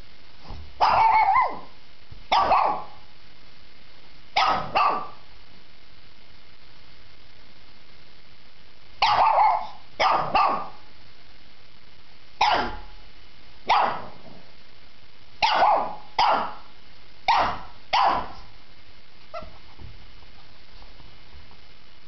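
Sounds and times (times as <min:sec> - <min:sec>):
dog barking: 0:00.8 - 0:01.7, 0:02.3 - 0:03.0, 0:04.4 - 0:05.2, 0:09.0 - 0:10.8, 0:12.4 - 0:13.0, 0:13.7 - 0:14.2, 0:15.4 - 0:16.7, 0:17.3 - 0:18.5.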